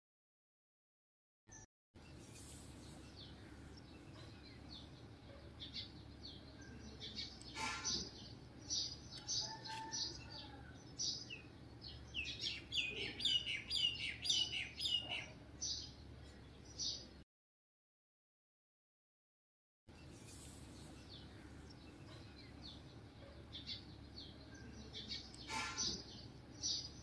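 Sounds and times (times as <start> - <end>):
small birds chirping: 1.5 - 17.2, 19.9 - 27.0.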